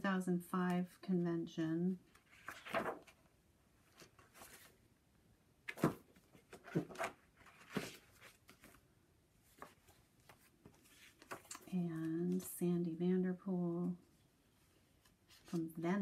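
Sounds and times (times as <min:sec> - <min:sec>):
paper pages rustling and flapping: 0:02.2 - 0:03.3, 0:03.9 - 0:04.8, 0:05.7 - 0:08.8, 0:09.5 - 0:11.7.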